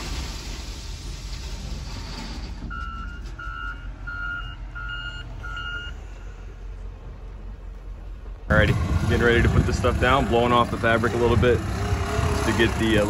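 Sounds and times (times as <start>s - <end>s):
low engine rumble: 0.0s - 13.0s
reverse alarm beeping: 2.7s - 6.3s.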